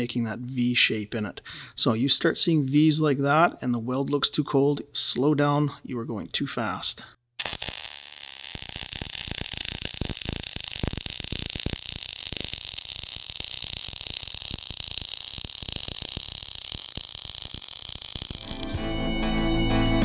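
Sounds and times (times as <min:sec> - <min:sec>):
welding arc hissing and crackling: 0:07.4 - 0:18.8.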